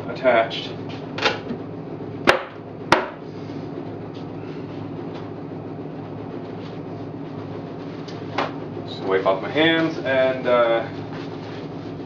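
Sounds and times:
low background hum: 0.0s - 12.0s
sharp wooden knock: 2.2s - 3.2s.

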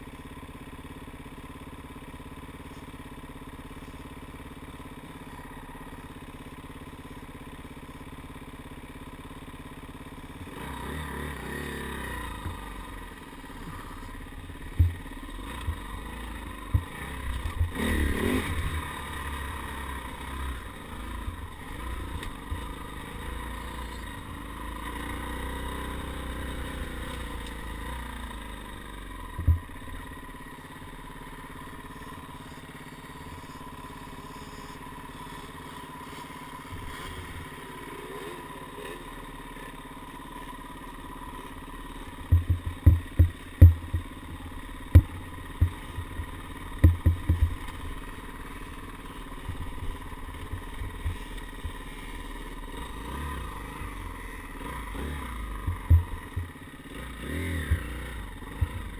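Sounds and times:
dirt bike engines running: 0.0s - 58.9s
heavy thumps: 42.3s - 44.1s, 44.9s - 47.6s, 55.7s - 56.5s.

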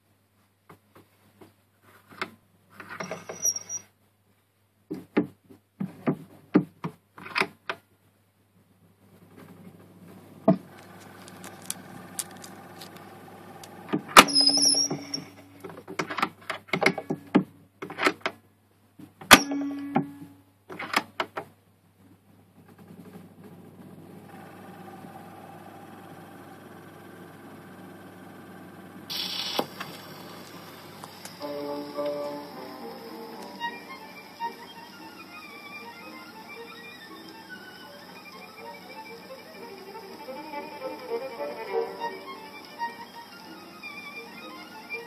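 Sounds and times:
steady mechanical whir: 9.5s - 15.7s, 23.0s - 45.0s.

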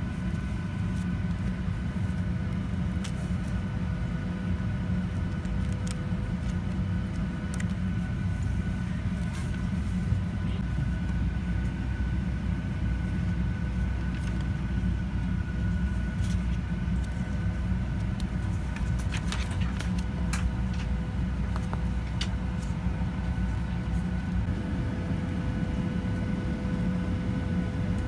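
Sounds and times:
aircraft cabin rumble: 0.0s - 28.0s
faint steady hum: 0.0s - 28.0s
magazine pages rustling: 4.8s - 10.6s, 14.0s - 24.1s.

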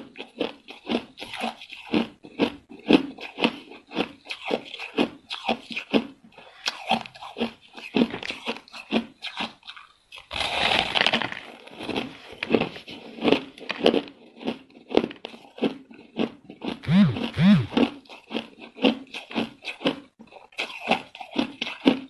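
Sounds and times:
ice being chewed: 0.0s - 22.0s
short low rising and falling tones: 16.8s - 17.8s.

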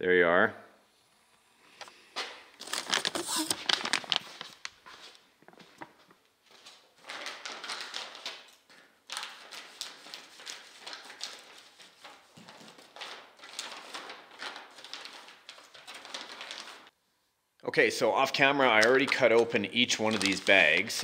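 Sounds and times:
plastic bags crinkling: 2.6s - 6.0s, 7.0s - 16.9s, 18.6s - 21.0s.

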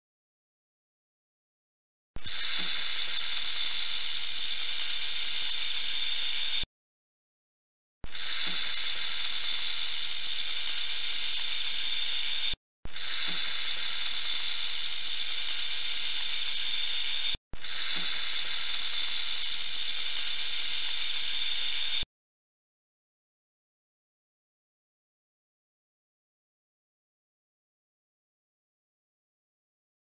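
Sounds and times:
rattlesnake tail rattling: 13.0s - 21.3s.

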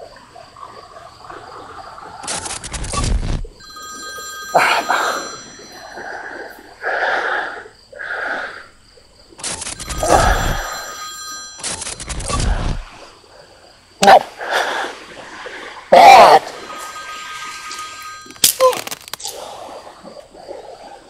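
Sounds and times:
old telephone bell ringing: 3.6s - 6.6s, 9.6s - 12.5s, 16.4s - 19.1s.

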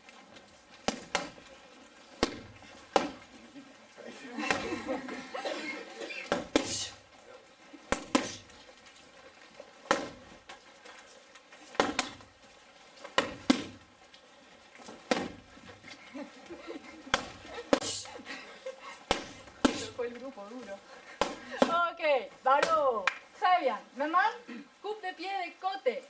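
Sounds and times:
kicks smacking kick shields: 2.2s - 3.3s, 6.3s - 6.9s, 7.9s - 8.4s, 9.9s - 10.4s, 11.8s - 12.2s, 13.2s - 13.8s, 15.1s - 15.4s, 19.1s - 20.0s.

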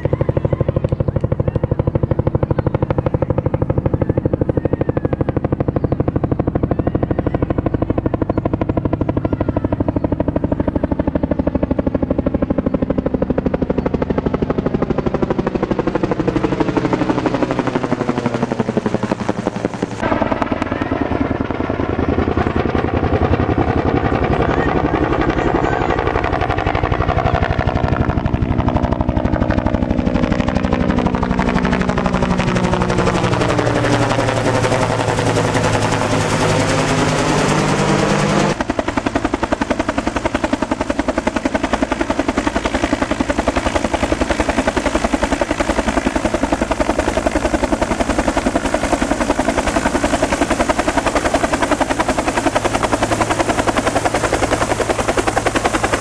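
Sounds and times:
helicopter rotor chopping: 0.0s - 56.0s.

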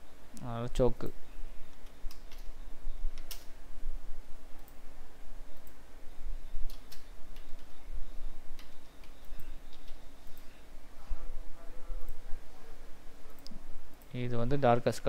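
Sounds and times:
steady low hum: 0.0s - 15.0s
computer mouse clicks: 1.7s - 2.5s, 3.1s - 3.5s, 6.6s - 7.8s, 8.5s - 10.5s.

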